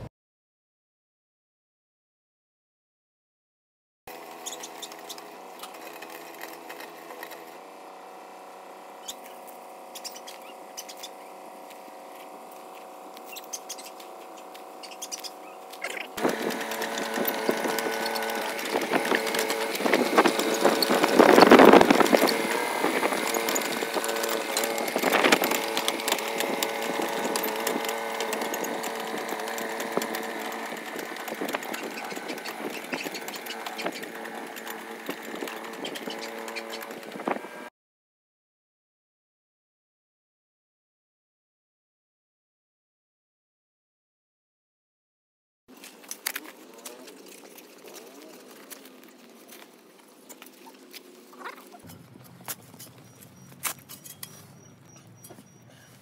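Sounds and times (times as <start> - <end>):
spade scraping and crunching soil: 4.1 - 7.8, 9.0 - 37.7, 45.7 - 56.0
excavator diesel engine running: 4.1 - 37.7
crawler tracks clanking: 9.0 - 37.7.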